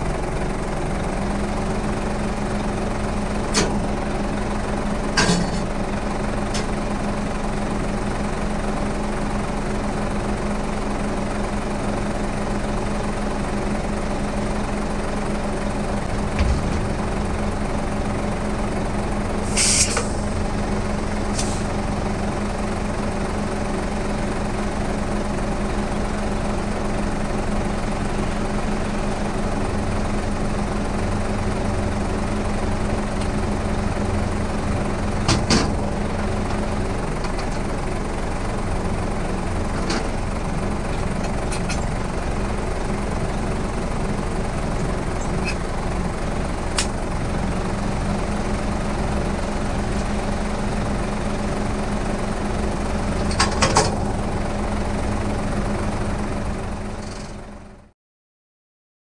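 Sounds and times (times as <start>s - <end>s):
heavy vehicle engine idling: 0.0s - 57.9s
sharp clicks and knocks: 16.3s - 17.2s.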